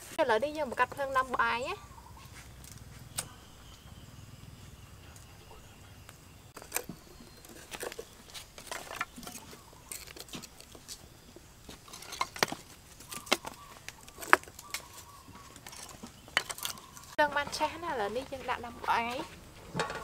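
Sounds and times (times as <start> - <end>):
loud wood crack: 6.1 - 11.0, 11.7 - 17.2.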